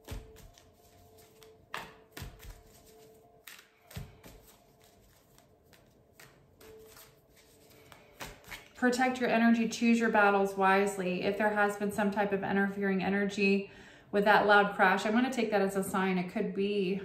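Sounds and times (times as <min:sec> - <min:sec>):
cards being shuffled: 0:00.0 - 0:08.8
cards tapping and clicking: 0:00.0 - 0:08.8.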